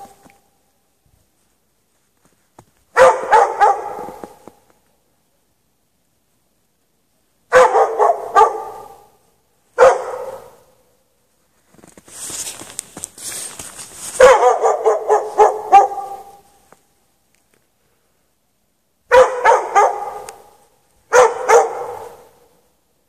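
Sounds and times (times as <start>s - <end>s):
dog barking: 2.9s - 4.4s, 7.5s - 9.2s, 9.8s - 10.8s, 14.1s - 16.5s, 19.1s - 22.5s.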